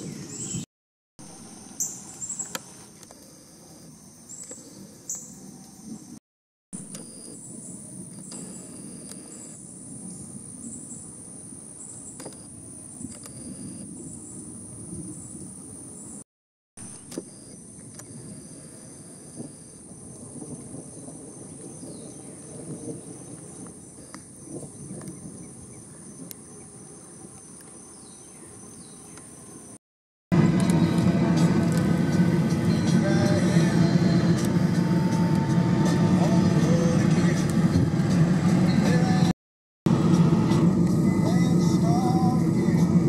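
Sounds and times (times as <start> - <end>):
insects droning high-pitched: 1.3 - 6.2, 6.9 - 16.2, 16.9 - 29.8
pulsed insect call: 1.3 - 6.2, 6.8 - 16.2, 16.8 - 29.8
low outdoor rumble: 30.3 - 39.3, 39.9 - 43.0.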